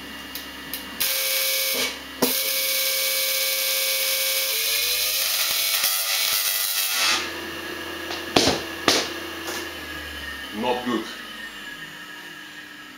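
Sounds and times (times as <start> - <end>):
tesla coil sparks buzzing: 1.0 - 7.3, 8.0 - 9.7.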